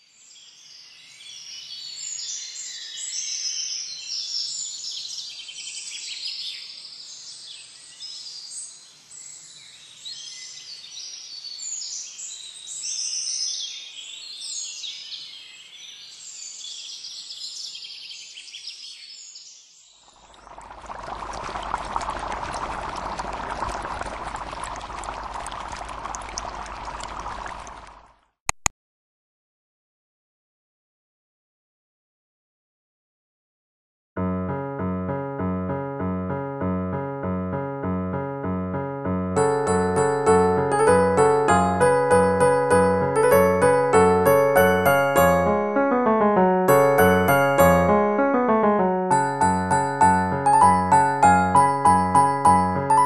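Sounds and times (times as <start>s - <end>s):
quick sharp clicks: 28.5s - 28.7s.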